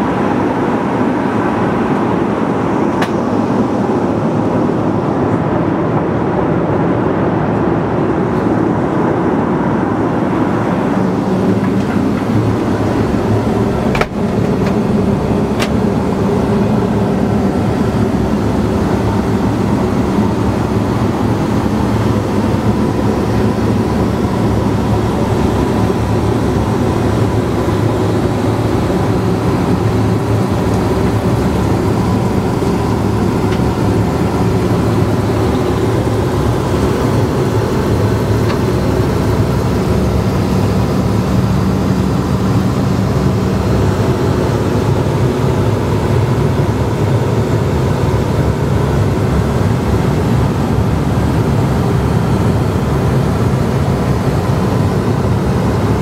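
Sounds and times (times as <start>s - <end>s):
airplane cabin airflow and engine noise: 0.0s - 56.0s
low hum: 9.8s - 46.1s.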